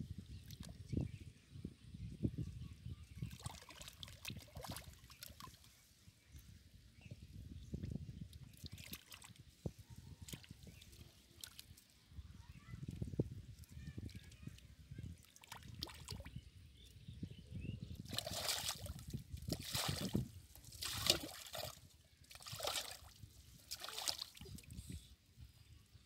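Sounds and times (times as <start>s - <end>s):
muddy water sloshing and splashing: 3.2s - 5.8s, 8.3s - 9.6s, 15.0s - 16.4s, 17.9s - 24.8s.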